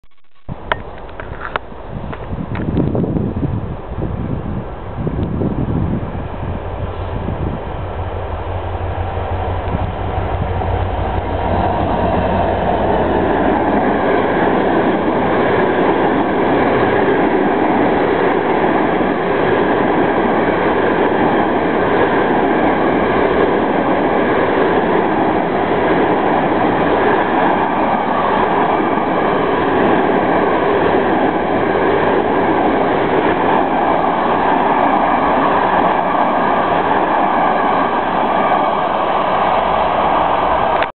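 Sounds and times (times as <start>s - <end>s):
train wheels rumbling on rails: 0.5s - 40.9s
deep low rumble: 4.1s - 14.0s.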